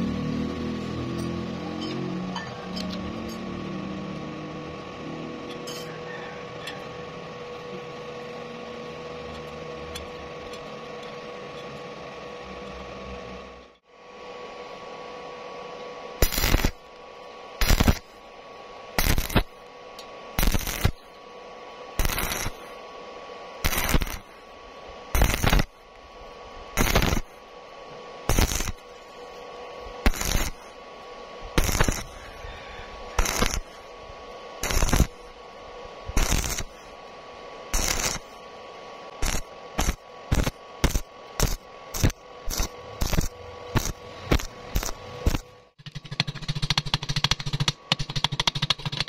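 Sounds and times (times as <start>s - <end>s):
steady hum: 0.0s - 49.0s
welding arc crackling: 16.2s - 49.0s.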